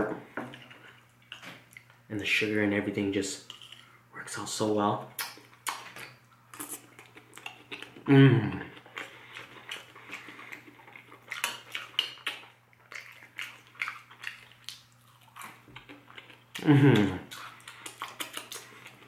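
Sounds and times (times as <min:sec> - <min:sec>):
chewing: 0:05.2 - 0:19.0
person humming mmm: 0:08.0 - 0:08.8, 0:16.6 - 0:17.4.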